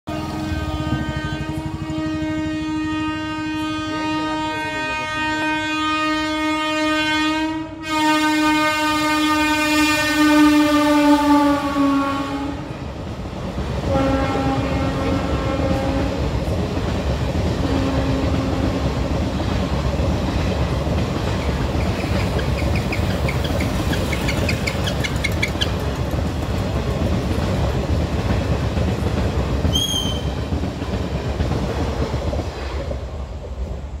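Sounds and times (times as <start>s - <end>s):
train coaches rumbling and clattering: 0.1s - 7.0s, 8.5s - 34.0s
locomotive horn blast: 0.1s - 12.7s, 13.9s - 16.2s, 17.6s - 19.0s.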